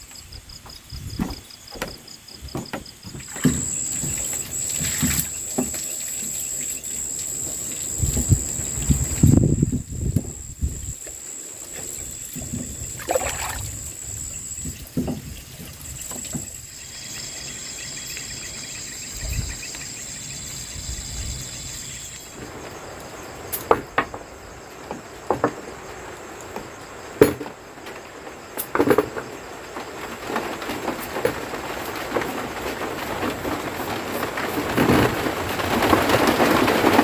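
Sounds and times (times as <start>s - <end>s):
water trickling over vegetables: 3.1s - 10.1s, 11.6s - 19.6s
rain hissing: 3.2s - 28.5s.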